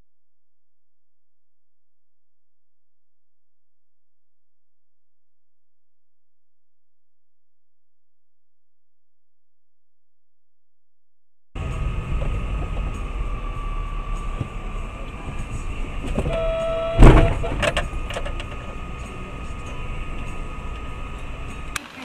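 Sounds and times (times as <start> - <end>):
loud crash impact: 11.6 - 17.9
short steady tone: 11.6 - 21.7
road and engine rumble: 11.6 - 22.0.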